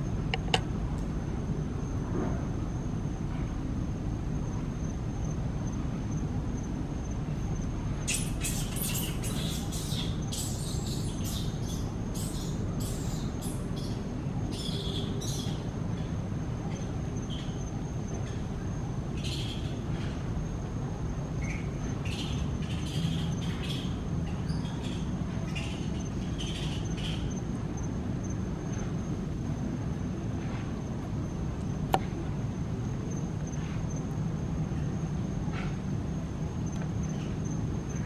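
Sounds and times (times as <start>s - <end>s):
small birds chirping: 8.0s - 20.2s, 21.4s - 27.9s.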